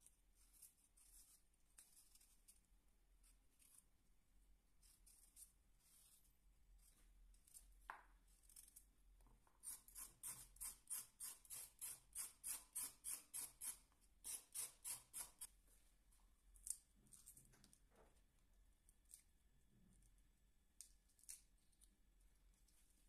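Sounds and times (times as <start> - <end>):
knife scraping carrot skin: 9.6 - 15.5.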